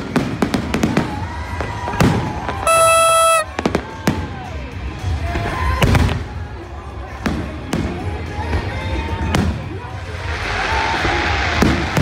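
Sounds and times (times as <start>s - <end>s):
fireworks bangs and crackling: 0.0s - 12.0s
horn-like blast: 2.7s - 3.5s.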